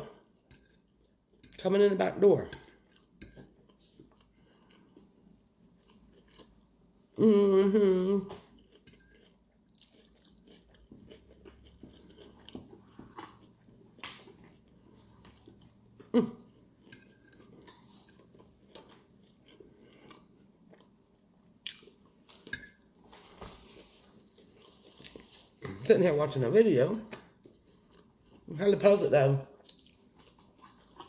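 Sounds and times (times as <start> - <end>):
person chewing candy bar: 2.9 - 5.2, 5.8 - 6.8, 8.5 - 22.5, 27.4 - 28.5, 29.6 - 31.0.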